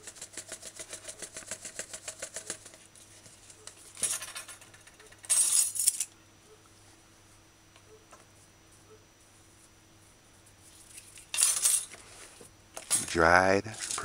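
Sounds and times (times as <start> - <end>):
dried herbs rattling in shaker jar: 0.0 - 2.9.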